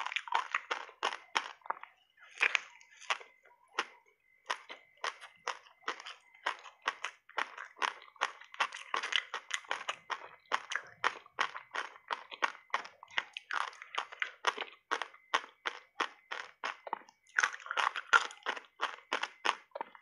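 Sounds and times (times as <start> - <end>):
crunchy ice being chewed: 0.0 - 20.0.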